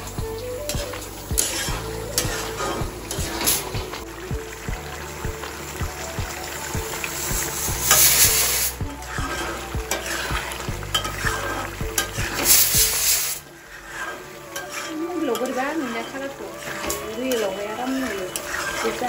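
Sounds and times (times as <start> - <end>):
gravy sizzling: 0.0 - 19.0
metal spatula scraping a pan: 0.9 - 4.1, 7.9 - 19.0.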